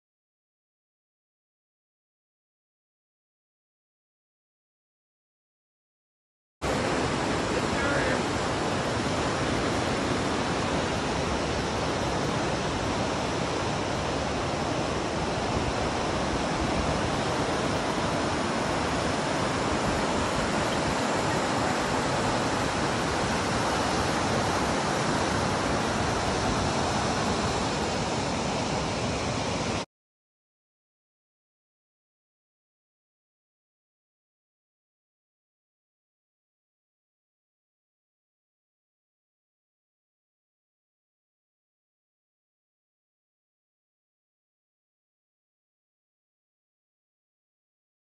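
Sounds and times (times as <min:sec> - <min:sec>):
whitewater river rapids rushing: 0:06.6 - 0:29.9.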